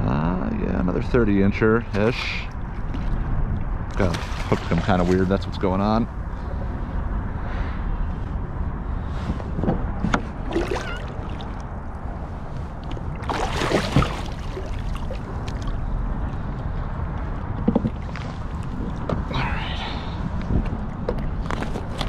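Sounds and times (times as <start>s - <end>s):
wind rumble on microphone: 0.0s - 22.0s
water sloshing against kayak: 2.0s - 5.6s, 10.0s - 19.4s
splashes: 3.9s - 5.5s, 10.4s - 11.6s, 12.9s - 15.8s.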